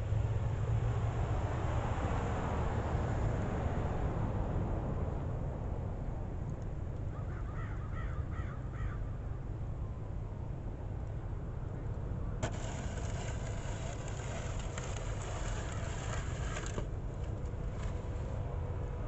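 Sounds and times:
snow shovel scraping concrete: 12.4 - 18.4.

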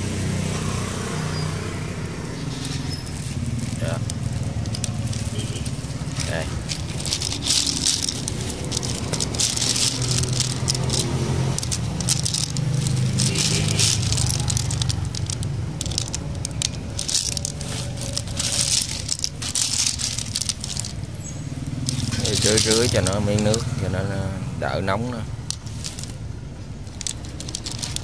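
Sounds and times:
snail shells clattering: 1.1 - 28.0
leaf litter rustling: 2.4 - 23.8.

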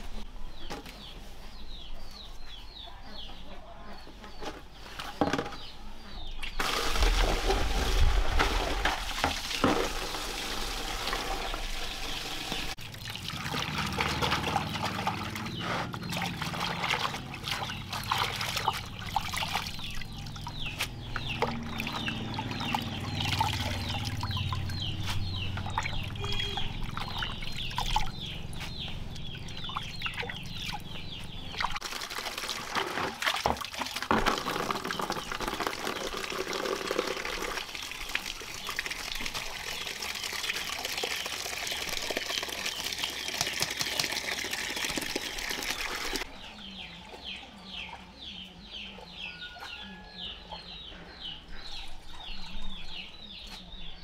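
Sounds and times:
running water pouring: 6.6 - 15.5, 31.6 - 46.2
water splashing in plastic basin: 6.6 - 28.2, 31.5 - 46.3.

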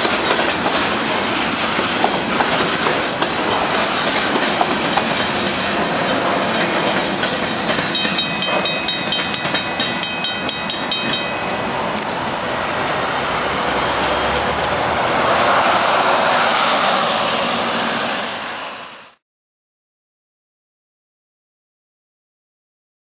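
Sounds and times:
train wheels clacking over rail joints: 0.0 - 11.3
bus driving past: 11.7 - 19.2.

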